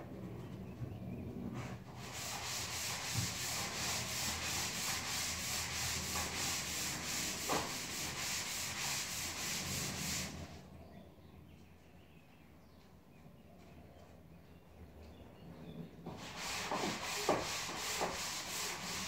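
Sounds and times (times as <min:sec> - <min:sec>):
sanding pad rubbing on wall: 0:01.9 - 0:10.6, 0:16.1 - 0:19.0.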